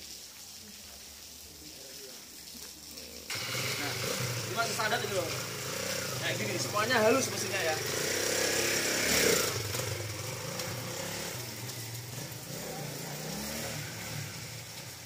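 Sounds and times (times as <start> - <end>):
motorcycle engine running: 3.3 - 14.6.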